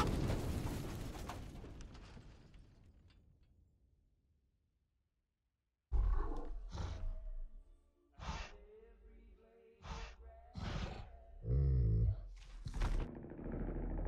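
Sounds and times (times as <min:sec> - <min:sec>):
deep rumble: 0:11.9 - 0:14.0.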